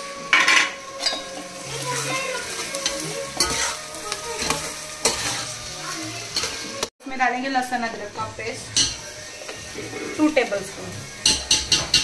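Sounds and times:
onions sizzling in hot oil: 0.0s - 12.0s
metal spoon scraping pot: 2.6s - 3.8s.

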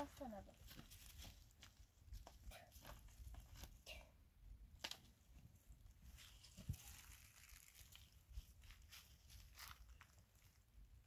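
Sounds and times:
faint clicks and rustles: 4.7s - 11.0s.

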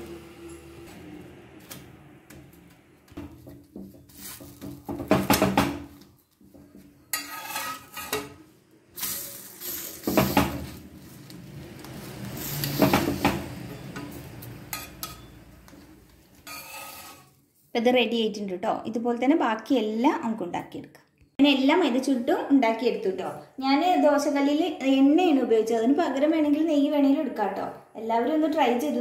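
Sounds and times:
spatula scraping on metal pan: 6.8s - 10.8s, 14.6s - 15.4s, 16.3s - 17.4s.

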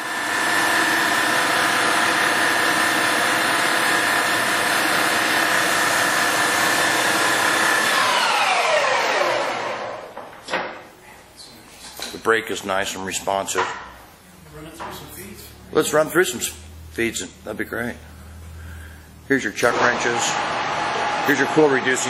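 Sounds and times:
lathe spindle whining: 0.0s - 10.0s, 19.6s - 22.0s.

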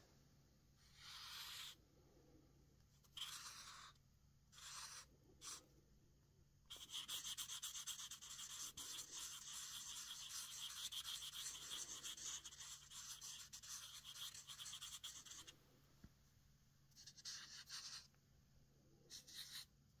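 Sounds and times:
marker scribbling on paper: 0.8s - 1.8s, 3.0s - 5.6s, 6.7s - 15.5s, 16.9s - 18.1s, 19.1s - 19.7s.

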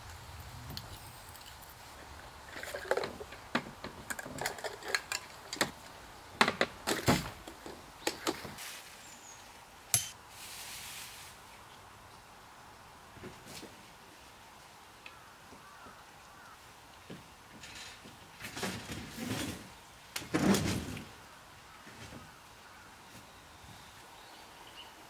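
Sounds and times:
small hard objects clattering: 0.8s - 5.8s
brief soft hiss: 10.0s - 11.4s.

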